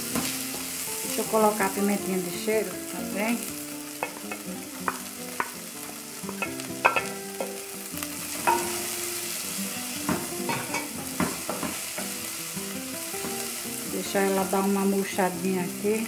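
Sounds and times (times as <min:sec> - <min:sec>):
vegetables sizzling in oil: 0:00.0 - 0:16.0
wooden spoon knocking and scraping pot: 0:04.0 - 0:05.6.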